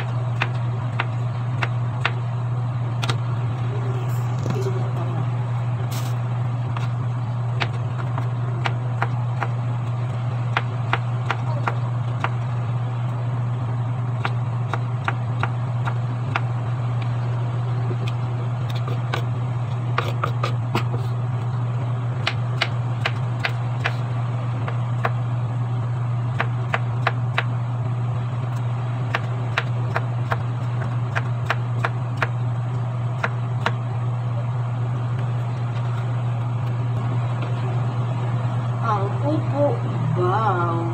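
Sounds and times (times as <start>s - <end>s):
steady low hum: 0.0s - 40.9s
knife chopping on wooden board: 19.9s - 21.0s, 29.1s - 32.3s.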